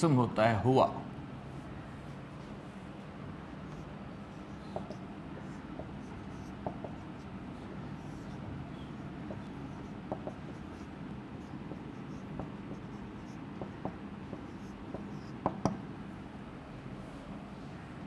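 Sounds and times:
low room hum: 0.0 - 18.0
marker pen writing on whiteboard: 2.0 - 16.2.

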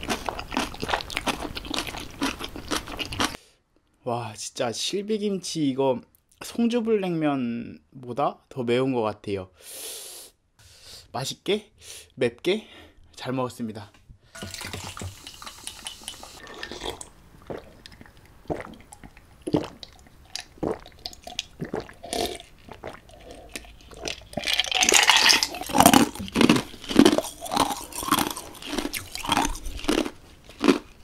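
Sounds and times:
ice being chewed: 0.0 - 3.4, 14.4 - 31.0
swallowing: 16.4 - 30.8
ice rattling in glass: 24.4 - 26.2.

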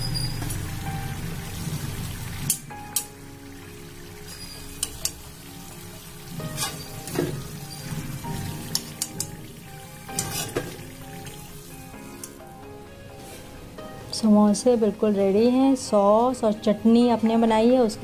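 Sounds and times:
food deep-frying in hot oil: 0.0 - 12.4.

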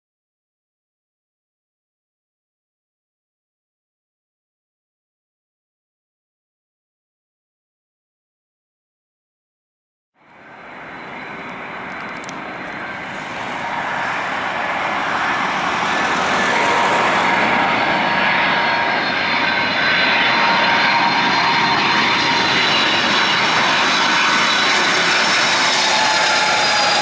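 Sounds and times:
faint engine whine: 10.2 - 27.0
jet engine noise: 10.2 - 27.0.

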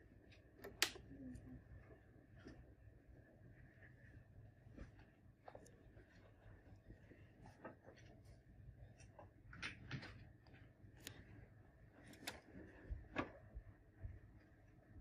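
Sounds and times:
faint irregular clicks and taps: 3.5 - 15.0.

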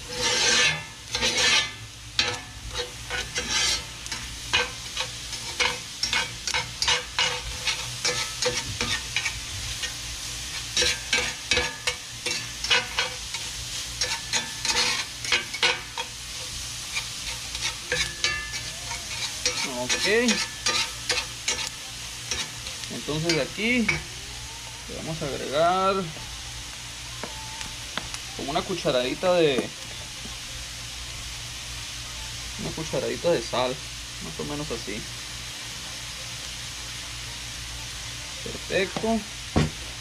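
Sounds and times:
metal spatula scraping skillet: 0.0 - 24.1
food sizzling in oil: 0.0 - 40.0.

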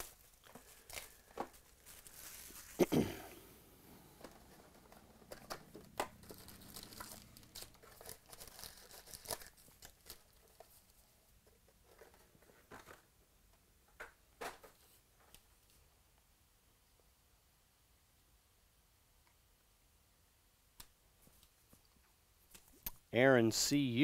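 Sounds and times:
foil packs crinkling: 0.0 - 2.9, 4.2 - 11.0.

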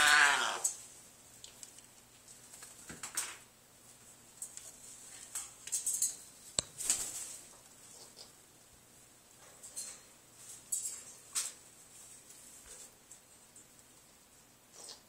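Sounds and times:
parrots clicking and rustling: 1.4 - 8.3, 9.4 - 13.9.

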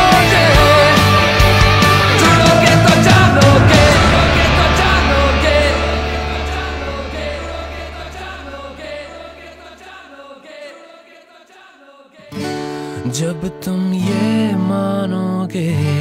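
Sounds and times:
rock band final chord: 0.0 - 10.1
held low bass note: 1.7 - 9.8.

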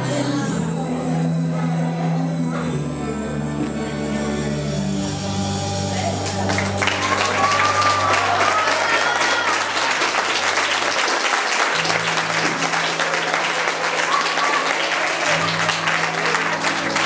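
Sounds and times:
background music: 0.0 - 17.0
audience applauding: 6.0 - 17.0.

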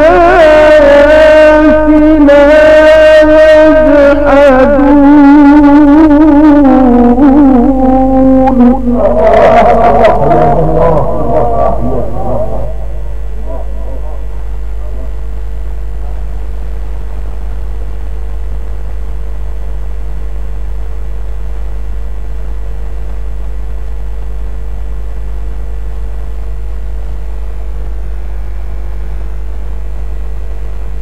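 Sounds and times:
faint hum: 0.0 - 31.0
deep rumble: 8.6 - 17.9.

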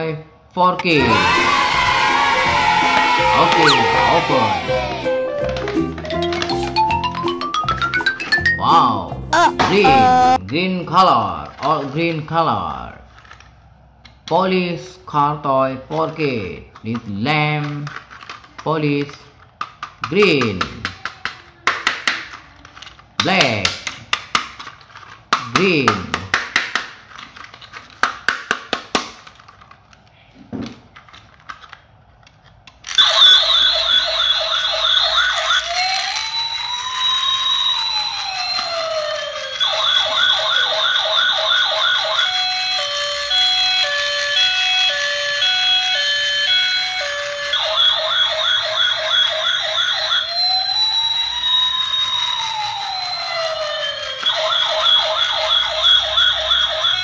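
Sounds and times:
toy electronic siren: 1.0 - 7.2, 9.3 - 10.4, 32.9 - 57.0.

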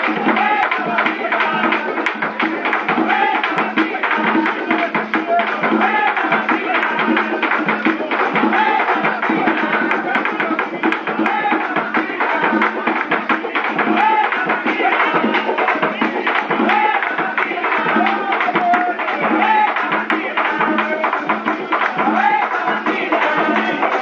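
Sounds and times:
hand drums playing: 0.0 - 24.0
person singing: 0.0 - 24.0.

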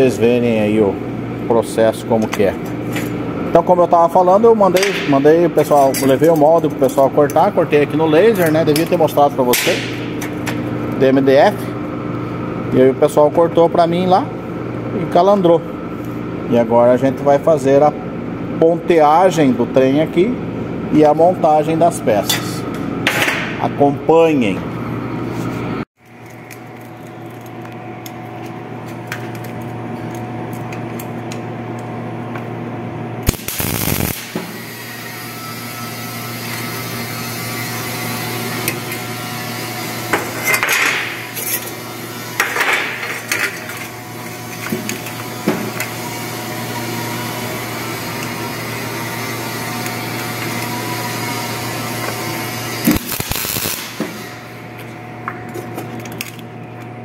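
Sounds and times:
steady machine hum: 0.0 - 57.0
welder crackling bursts: 33.2 - 37.0, 48.0 - 54.6.

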